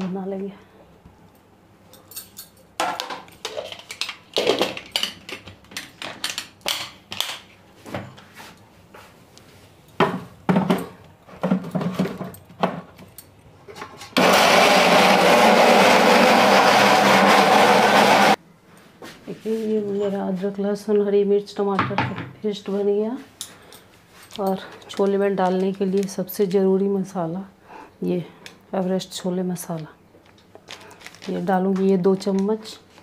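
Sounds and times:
mixer grinder running: 0:14.2 - 0:18.4.

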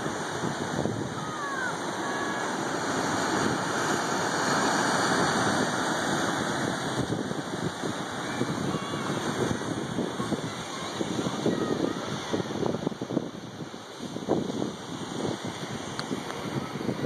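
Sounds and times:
surf breaking over rocks: 0:00.0 - 0:17.0.

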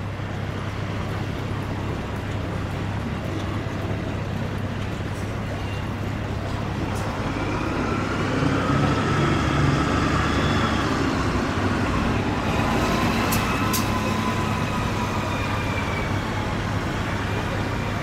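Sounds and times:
road traffic passing: 0:00.0 - 0:18.0
engine whines: 0:05.0 - 0:18.0.

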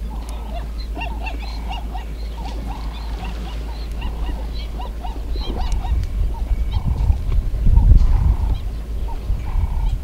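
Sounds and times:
waterbirds honking: 0:00.0 - 0:10.0
wind rumble on microphone: 0:00.0 - 0:10.0.

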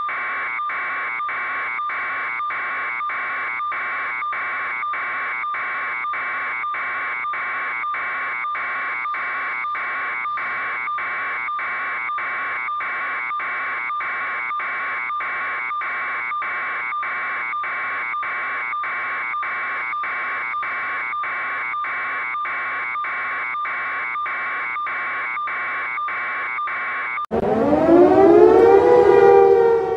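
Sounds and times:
electronic alarm buzzer pulsing: 0:27.3 - 0:29.9.

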